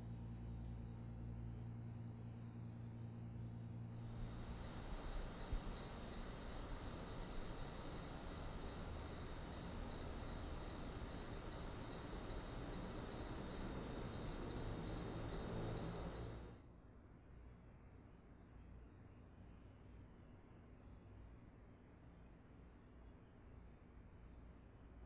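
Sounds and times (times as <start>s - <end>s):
crickets chirping: 3.8s - 16.6s
steady hiss: 4.0s - 16.6s.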